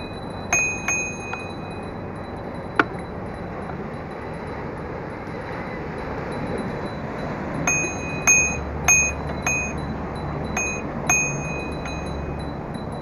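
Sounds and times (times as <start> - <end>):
bicycle bell dings: 0.0 - 13.0.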